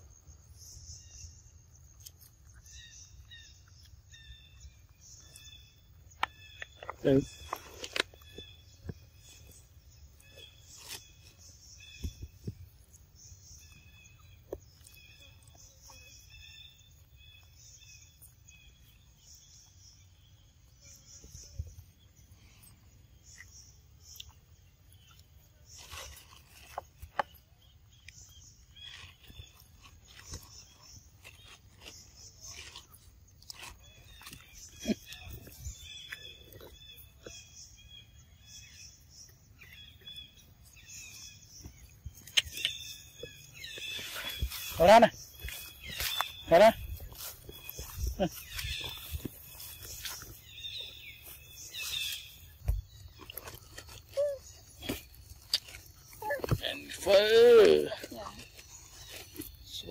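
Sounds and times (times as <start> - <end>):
birds chirping faintly: 0.0 - 59.9.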